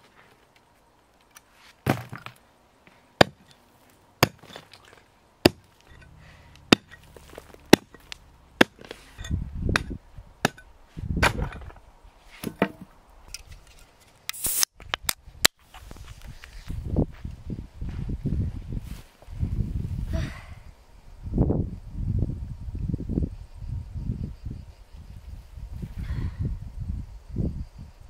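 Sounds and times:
pickaxe striking concrete: 0:03.2 - 0:03.5, 0:04.2 - 0:06.0, 0:06.7 - 0:11.7
drinks can opening hiss: 0:14.3 - 0:14.8.

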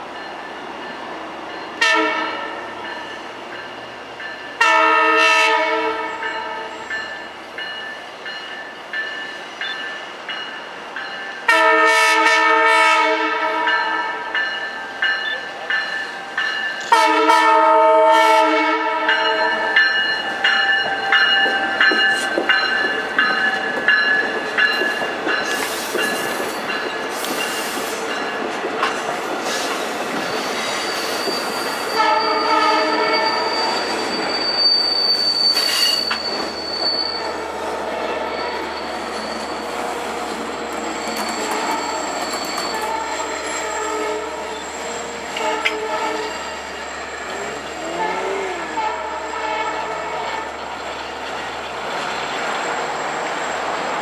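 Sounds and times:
train horn: 0:01.8 - 0:02.8, 0:04.6 - 0:06.9, 0:11.5 - 0:14.4, 0:16.8 - 0:19.9, 0:31.9 - 0:33.8, 0:37.1 - 0:38.9, 0:39.6 - 0:42.0, 0:42.6 - 0:50.7
wheels squealing: 0:29.5 - 0:49.5.

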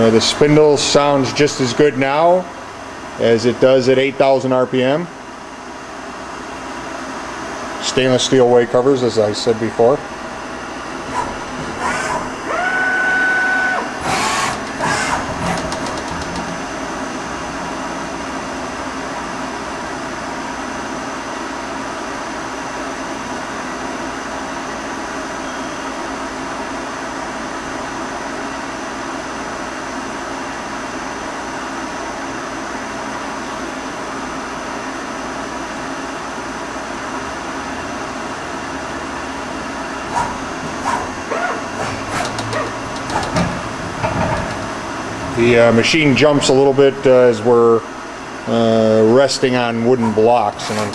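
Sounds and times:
short steady whine: 0:07.1 - 0:21.2
machine spindle whir: 0:09.2 - 0:20.4, 0:38.4 - 0:48.1, 0:49.3 - 0:50.9
loud mechanical knocks: 0:11.0 - 0:12.4, 0:14.0 - 0:16.8, 0:40.1 - 0:45.4.

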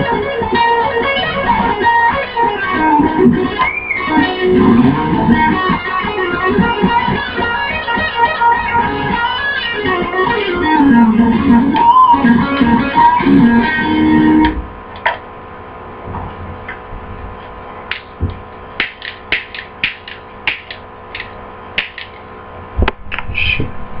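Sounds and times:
electric guitar phrase: 0:00.0 - 0:14.6
amplifier hum: 0:00.0 - 0:24.0.

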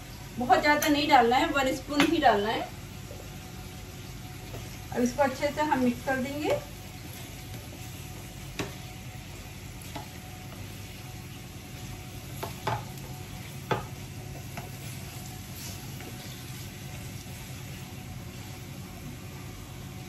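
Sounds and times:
potatoes sizzling in a pan: 0:00.0 - 0:20.0
spatula knocking against pan: 0:12.4 - 0:12.9, 0:13.6 - 0:13.9.

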